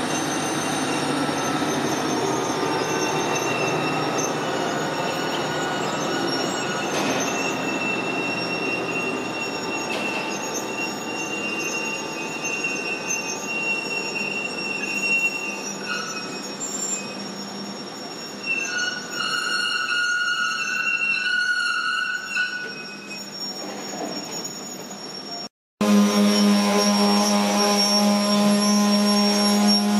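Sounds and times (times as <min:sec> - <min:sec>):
train wheels squealing: 0:00.0 - 0:25.5, 0:26.2 - 0:29.9.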